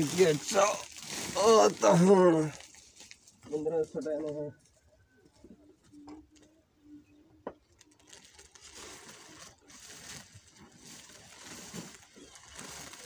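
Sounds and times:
dry straw and sack rustling: 0.0 - 4.3, 7.8 - 13.0.

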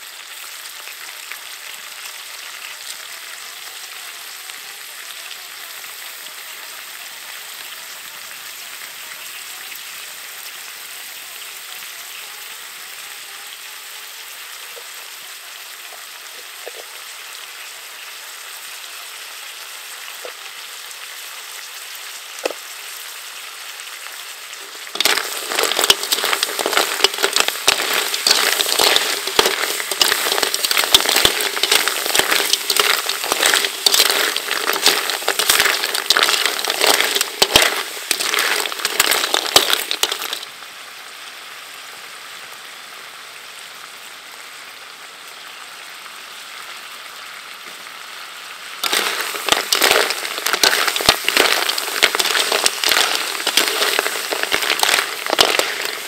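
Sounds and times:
snails sizzling in a wok: 0.0 - 56.0
metal ladle clattering shells in wok: 24.9 - 40.5, 48.8 - 56.0.

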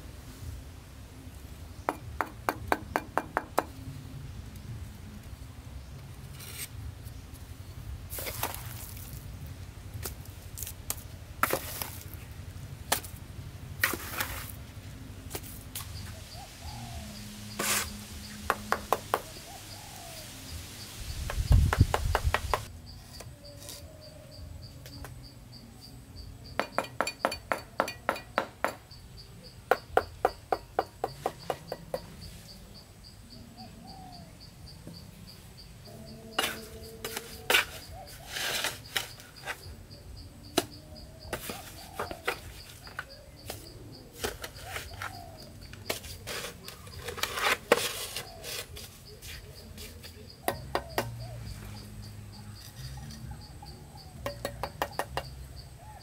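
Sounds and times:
insect droning: 0.0 - 56.0
bird chirping: 15.8 - 56.0
wooden knocks and taps: 21.3 - 22.7, 54.2 - 55.3.

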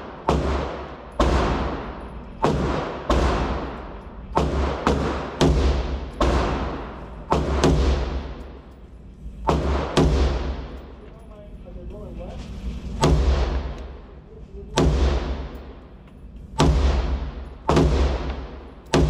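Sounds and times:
rifle shots echoing: 0.0 - 8.8, 9.4 - 11.0, 12.9 - 14.1, 14.7 - 19.0.

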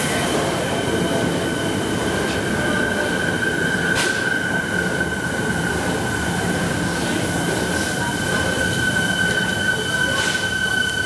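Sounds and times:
train rumble: 0.0 - 11.0
wheel squeal: 7.7 - 11.0.

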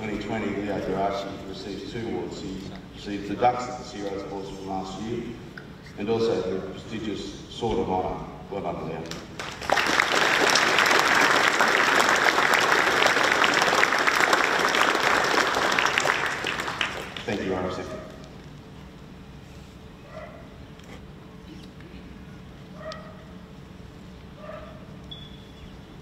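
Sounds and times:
low background hum: 0.0 - 26.0
large crowd applauding: 9.4 - 17.4.

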